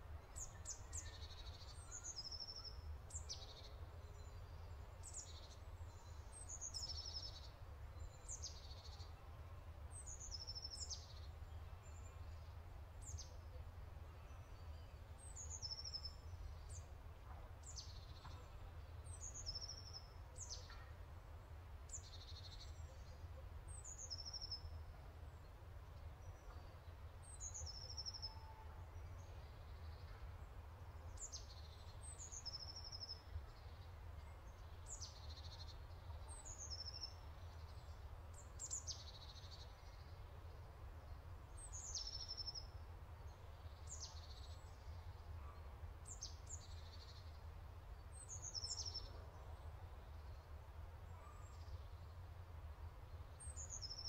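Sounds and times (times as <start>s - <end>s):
bird chirping: 0.2s - 9.2s, 26.0s - 30.4s, 48.0s - 50.5s.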